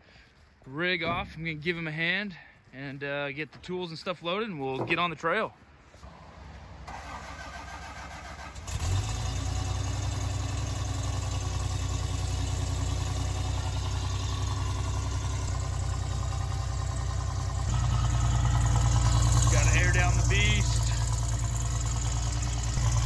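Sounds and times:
car engine starting: 6.8 - 23.0
car engine idling: 6.9 - 23.0.

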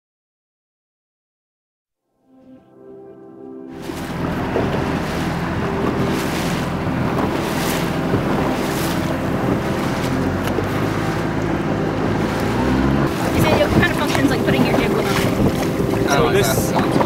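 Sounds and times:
water washing around sailboat: 3.7 - 17.0
wind buffeting microphone: 3.7 - 17.0.

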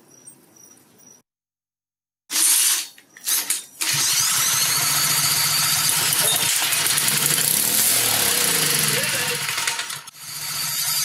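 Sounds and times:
pull-start engine starting and running: 2.3 - 11.0.

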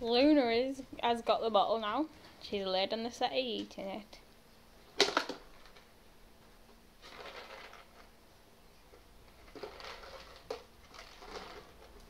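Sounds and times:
plastic bottle crinkling: 4.9 - 5.9, 7.0 - 8.1, 9.3 - 12.0.

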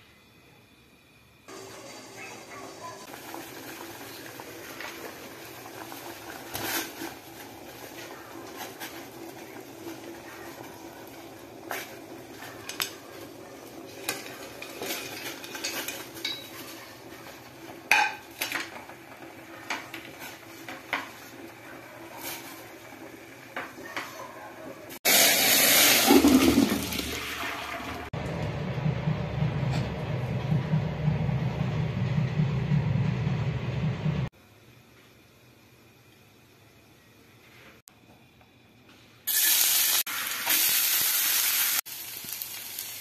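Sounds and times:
steady low hum: 28.2 - 34.9.

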